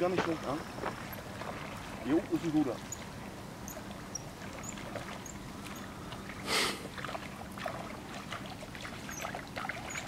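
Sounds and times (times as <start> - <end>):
low background hiss: 0.0 - 10.0
short rushing hiss: 6.5 - 6.9.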